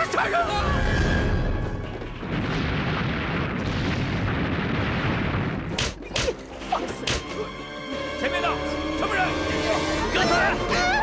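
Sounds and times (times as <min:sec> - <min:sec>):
rumbling explosion: 0:00.6 - 0:05.8.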